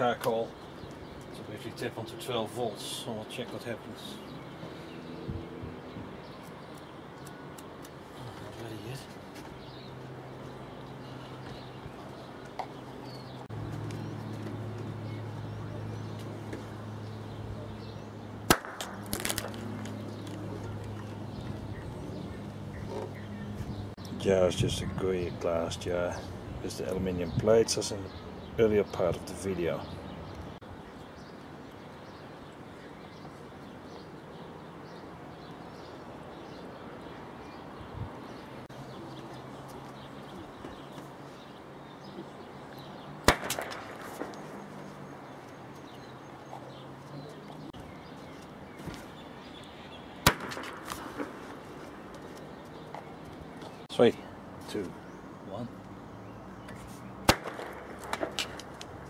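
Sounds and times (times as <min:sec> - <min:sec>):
outdoor background noise: 0:00.0 - 0:59.0
loud gas explosion pop: 0:43.2 - 0:44.0.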